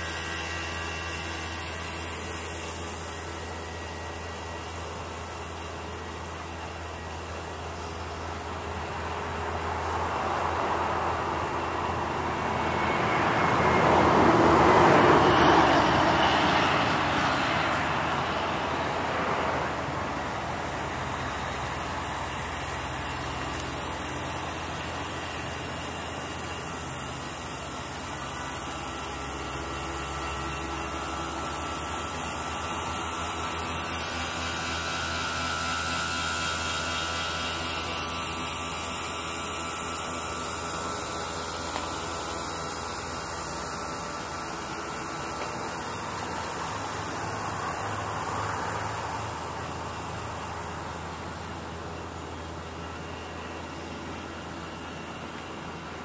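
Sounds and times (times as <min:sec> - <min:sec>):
steady background hum: 0:00.0 - 0:56.0
passing engine: 0:08.3 - 0:38.6.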